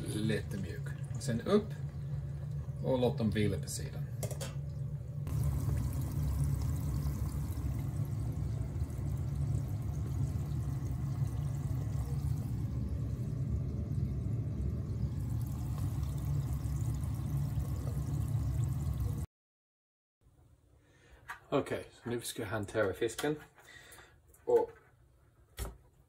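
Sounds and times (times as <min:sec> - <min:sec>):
chips bubbling in hot oil: 0:05.3 - 0:19.3.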